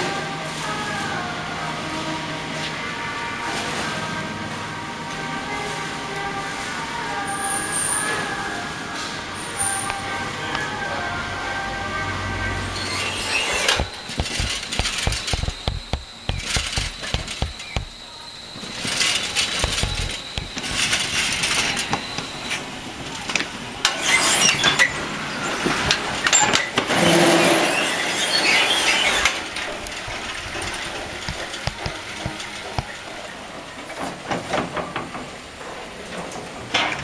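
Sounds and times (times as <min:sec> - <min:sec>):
steady high whine: 0:08.0 - 0:23.9, 0:29.2 - 0:33.8
metal squealing and clattering: 0:12.1 - 0:22.8, 0:23.8 - 0:34.2
sharp knocks: 0:13.5 - 0:18.0.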